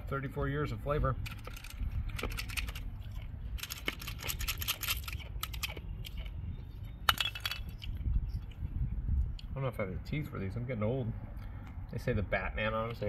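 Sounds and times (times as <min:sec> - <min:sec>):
candy tablets rattling in plastic dispenser: 0:03.6 - 0:05.7.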